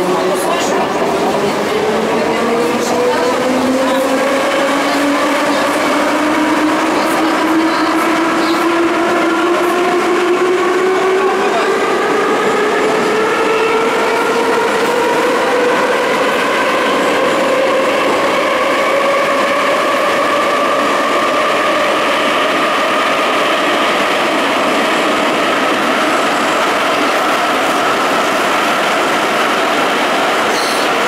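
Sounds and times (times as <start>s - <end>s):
metro train running gear rumble: 0.0s - 31.0s.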